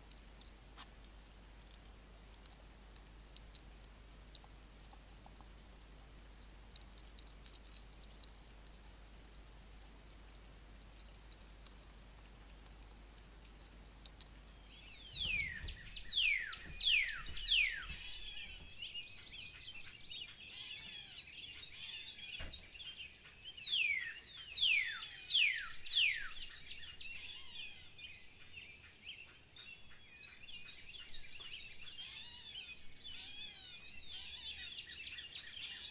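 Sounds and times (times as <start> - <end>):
faint steady hum: 0.0 - 21.8
birds chirping: 0.0 - 35.9.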